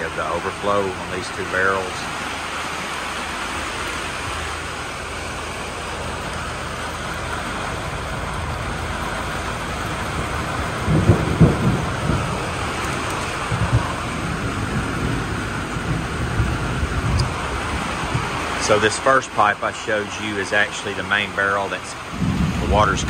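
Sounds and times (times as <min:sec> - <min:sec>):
heavy rain: 0:00.0 - 0:23.0
low thumps: 0:10.1 - 0:18.4.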